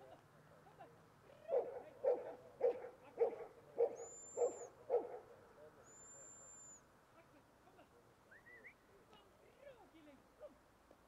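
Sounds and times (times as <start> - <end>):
dog barking: 1.5 - 5.3.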